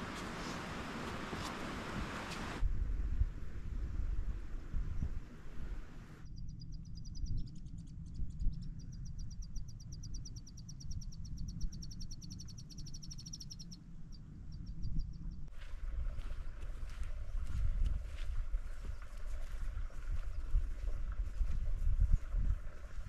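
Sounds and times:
wind on microphone: 0.0s - 6.2s, 14.4s - 23.0s.

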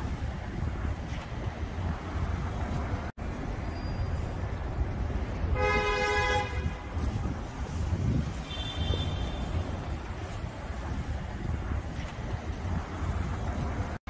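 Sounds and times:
wind on microphone: 0.0s - 3.1s, 4.1s - 14.0s
city traffic rumble: 0.0s - 14.0s
car horn: 5.5s - 7.0s, 8.3s - 9.7s.

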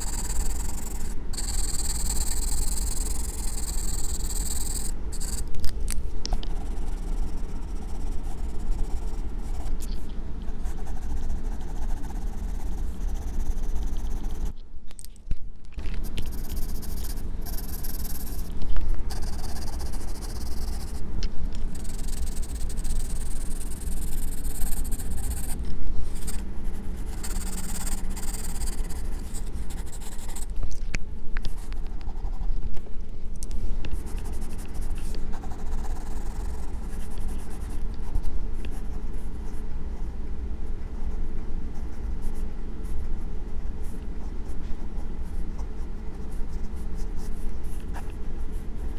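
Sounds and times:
pencil scratching on paper: 0.0s - 5.5s, 16.1s - 18.5s, 21.7s - 30.5s.

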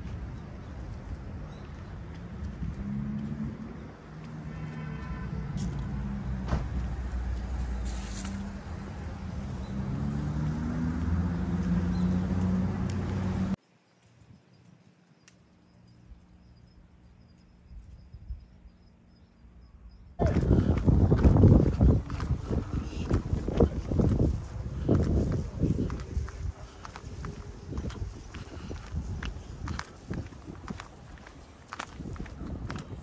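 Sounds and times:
vehicle engine humming: 5.4s - 13.6s, 20.2s - 33.0s.

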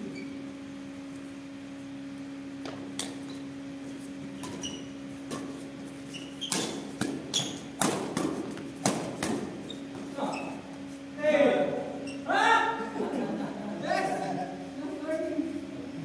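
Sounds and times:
shoes squeaking on court: 0.0s - 0.4s, 2.6s - 11.1s, 12.0s - 12.3s
steady hum: 0.0s - 16.0s
rackets hitting shuttlecock: 4.4s - 10.1s.

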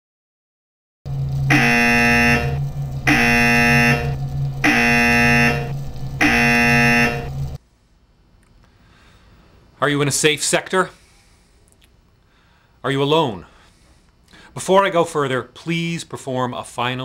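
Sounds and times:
electronic alarm tone: 1.1s - 7.6s
low electrical buzz: 1.1s - 17.0s.

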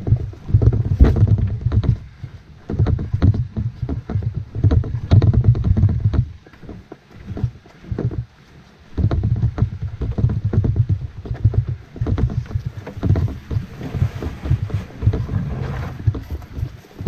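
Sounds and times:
canoe knocking and creaking: 0.0s - 17.0s
rustle through brush: 11.6s - 17.0s.

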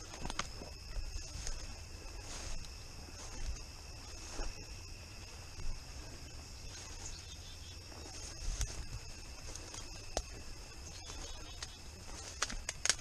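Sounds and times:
snaps and rustles of brush: 0.0s - 0.6s, 8.1s - 13.0s
insects trilling: 0.0s - 13.0s.

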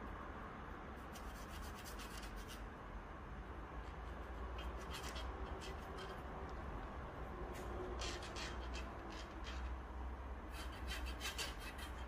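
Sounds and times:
stick scratching on screw: 1.0s - 2.7s, 3.8s - 9.9s, 10.5s - 12.0s.

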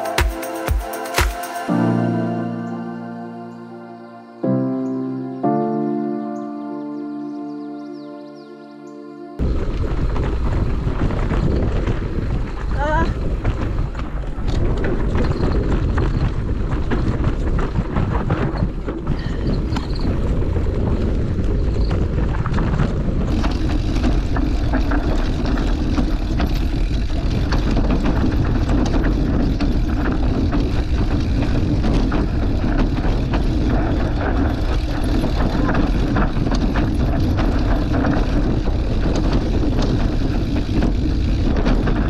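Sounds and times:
bike rattling: 9.4s - 42.0s
tyres rolling over gravel: 9.4s - 42.0s
wind on microphone: 9.4s - 42.0s.

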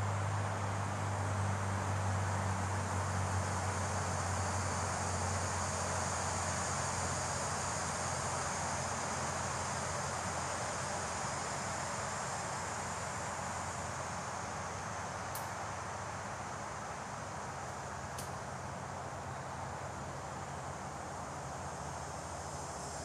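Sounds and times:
wind in leaves: 0.0s - 23.0s
insects hissing: 0.1s - 23.0s.

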